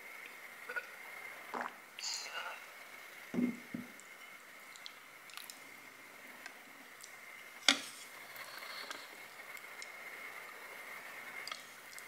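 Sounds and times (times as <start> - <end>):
person chewing noodles: 4.7 - 5.6.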